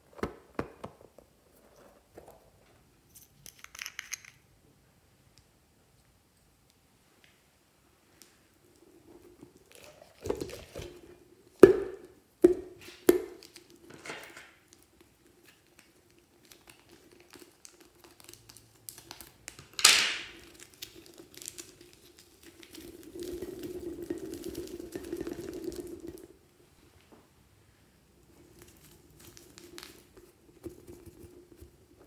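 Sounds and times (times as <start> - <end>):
crinkling: 8.0 - 12.2, 12.8 - 27.2, 28.2 - 32.0.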